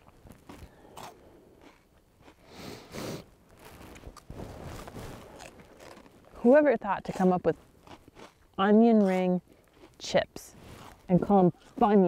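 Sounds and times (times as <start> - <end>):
crunchy snack chips being chewed: 0.0 - 2.6, 3.6 - 6.4, 7.0 - 10.0.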